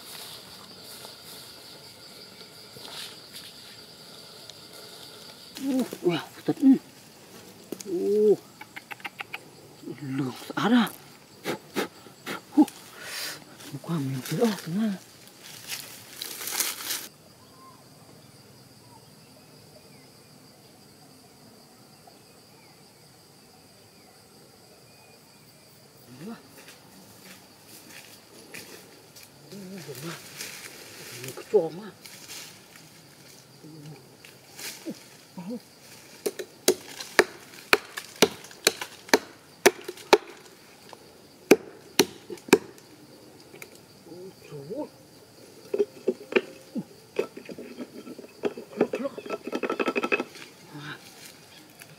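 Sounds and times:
high insect drone: 0.0 - 51.9
rustling and crackling: 13.6 - 17.1, 26.5 - 39.2
blade chopping into tree trunk: 36.2 - 40.5, 41.5 - 42.8.

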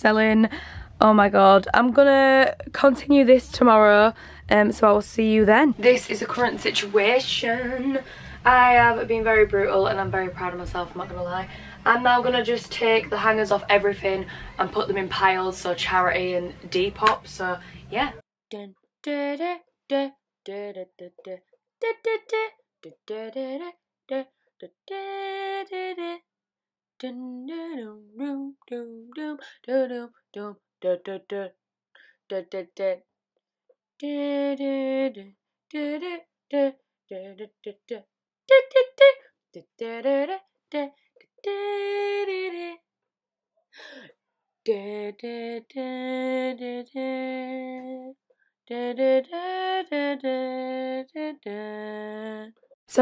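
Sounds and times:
woman singing slow melody: 5.8 - 17.9, 18.5 - 26.2, 27.0 - 31.5, 34.0 - 42.8, 44.7 - 52.5.

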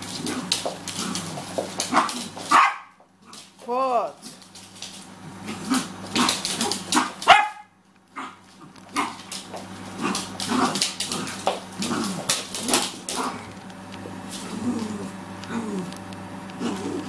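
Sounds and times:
dogs yipping and growling: 0.0 - 3.4, 5.2 - 13.6, 14.3 - 17.0
small dog barking: 1.9 - 3.0, 6.2 - 8.4.

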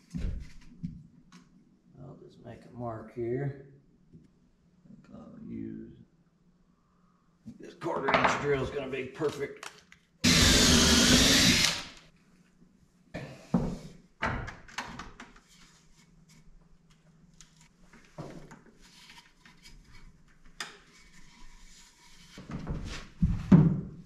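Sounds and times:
cordless drill: 10.2 - 12.0.

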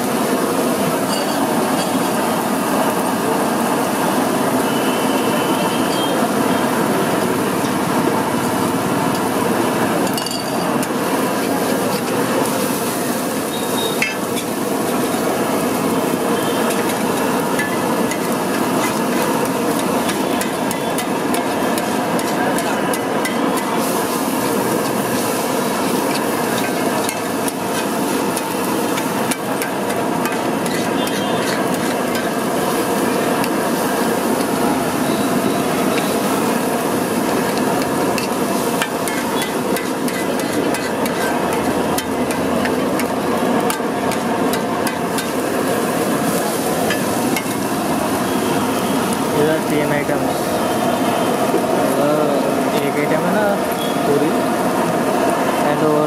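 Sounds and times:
egg mixture sizzling: 0.0 - 56.0
spatula scraping iron griddle: 16.6 - 32.8, 37.2 - 45.5.

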